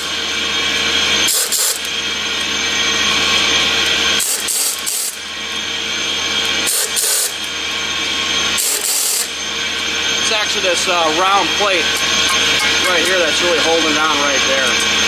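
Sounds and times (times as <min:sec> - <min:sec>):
pneumatic air ratchet running: 0:01.2 - 0:02.0, 0:03.8 - 0:05.3, 0:06.4 - 0:07.5, 0:08.6 - 0:09.4.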